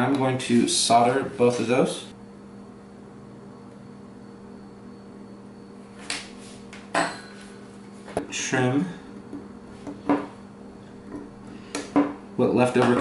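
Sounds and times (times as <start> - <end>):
faint high whine: 0.0 - 13.0
low electrical hum: 0.0 - 13.0.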